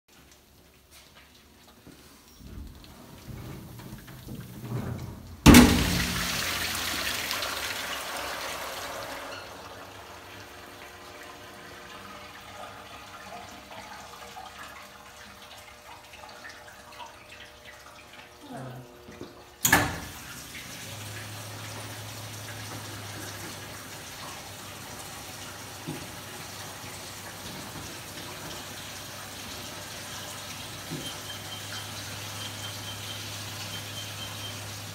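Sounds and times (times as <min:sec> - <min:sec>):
gush of water: 0:02.4 - 0:18.7, 0:19.7 - 0:34.9
dishwasher water spray: 0:04.3 - 0:09.3.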